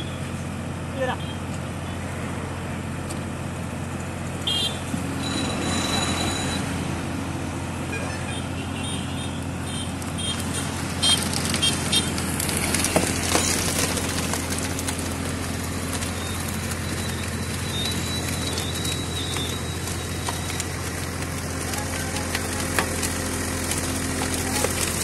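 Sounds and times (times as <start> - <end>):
tractor engine running: 0.0 - 25.0
wood cracking: 9.9 - 25.0.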